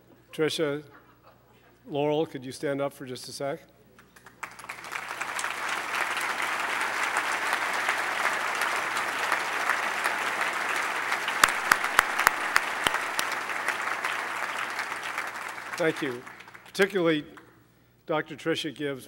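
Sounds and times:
audience clapping: 0:04.0 - 0:17.0
loud single claps: 0:06.8 - 0:16.7.

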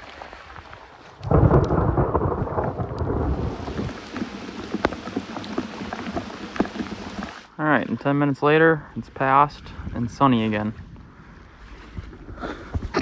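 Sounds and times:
steady rain: 0:00.0 - 0:07.6
thunderclap rumbling: 0:01.2 - 0:07.4.

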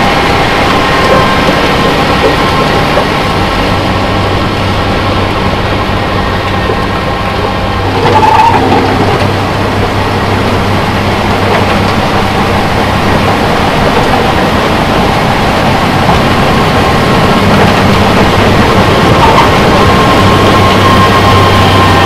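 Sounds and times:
engine droning low: 0:00.0 - 0:22.0.

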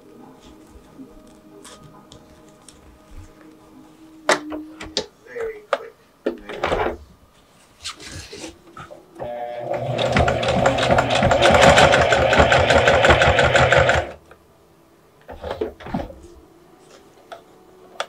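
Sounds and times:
faint handling noises: 0:00.0 - 0:09.1, 0:15.2 - 0:18.0
sewing machine stitching: 0:09.2 - 0:14.2.

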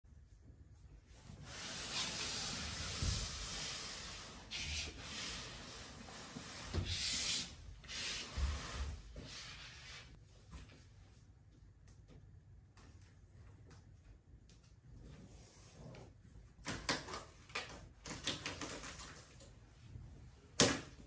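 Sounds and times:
cardboard box scraping on floor: 0:01.4 - 0:10.2.

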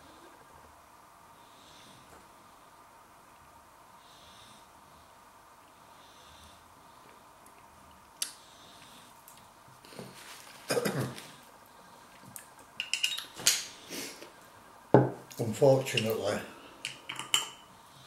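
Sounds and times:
man coughing: 0:10.7 - 0:11.3
spoon and bottle clinking: 0:12.8 - 0:13.7.

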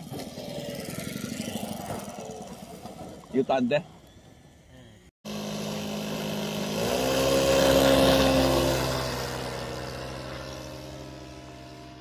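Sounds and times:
model airplane engine revving: 0:00.0 - 0:02.6, 0:05.2 - 0:12.0.

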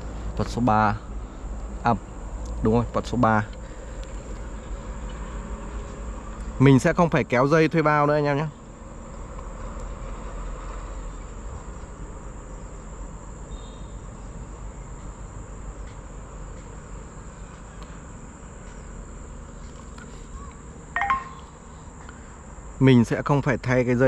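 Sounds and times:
insects trilling: 0:06.6 - 0:24.0.

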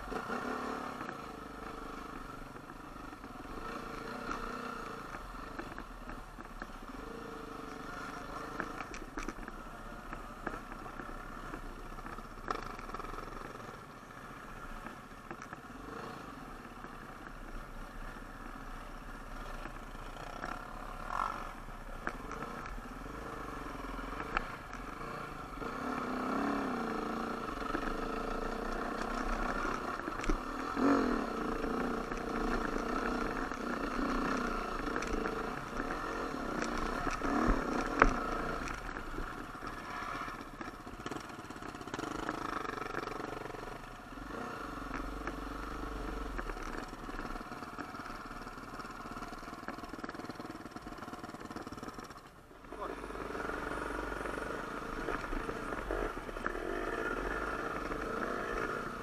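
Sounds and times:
dirt bike engine revving: 0:00.0 - 0:02.2, 0:22.2 - 0:47.7, 0:51.4 - 0:59.0.

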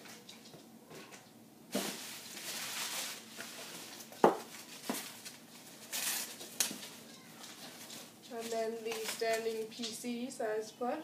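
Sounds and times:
plastic packaging crinkling: 0:01.7 - 0:09.9.

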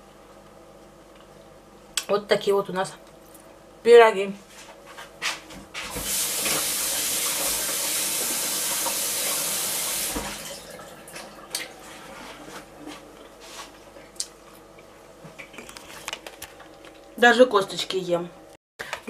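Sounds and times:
kitchen tap running: 0:05.9 - 0:11.7.

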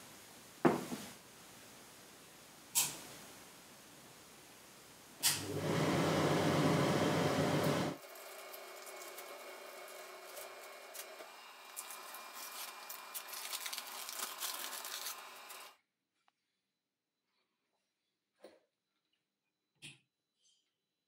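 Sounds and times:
exhaust fan whirring: 0:05.4 - 0:08.0.

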